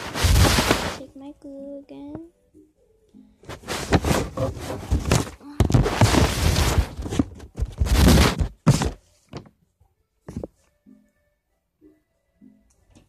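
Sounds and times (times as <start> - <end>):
phone rubbing against microphone: 3.4 - 7.2.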